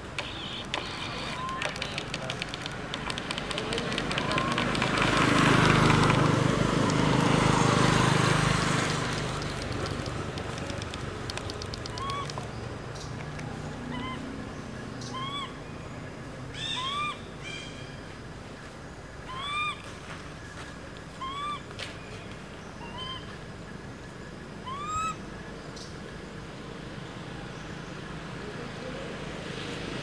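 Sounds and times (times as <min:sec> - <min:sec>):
macaque coo calls: 0:00.1 - 0:05.2, 0:09.4 - 0:12.5, 0:13.4 - 0:14.3, 0:21.2 - 0:21.7, 0:24.6 - 0:25.2.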